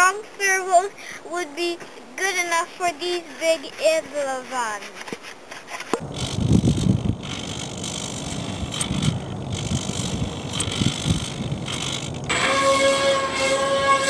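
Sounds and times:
wind buffeting microphone: 0:06.0 - 0:14.0.

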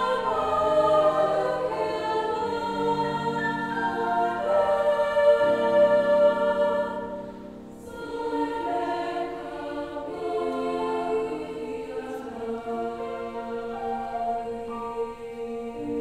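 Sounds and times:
girls' choir singing: 0:00.0 - 0:16.0.

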